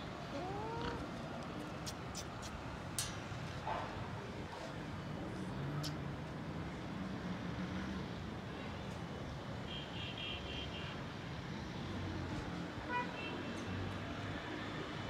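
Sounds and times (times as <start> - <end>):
distant road traffic: 0.0 - 15.0.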